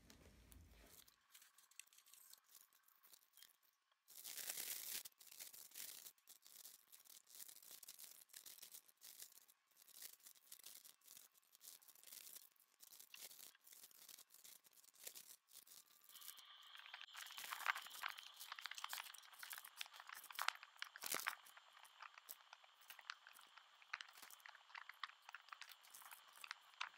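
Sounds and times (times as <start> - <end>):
plastic packaging crinkling: 0.9 - 26.9
tiny drills rattling in bags: 1.3 - 26.9.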